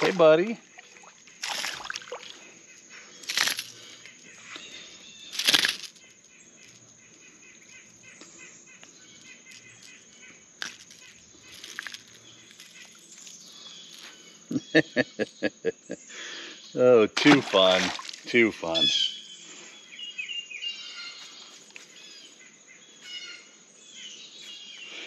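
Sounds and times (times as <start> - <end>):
fish flapping and shaking: 5.4 - 6.0.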